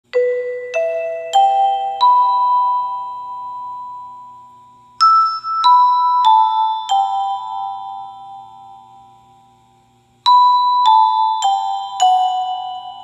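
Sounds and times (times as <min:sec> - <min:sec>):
bell-like struck notes: 0:00.1 - 0:13.0.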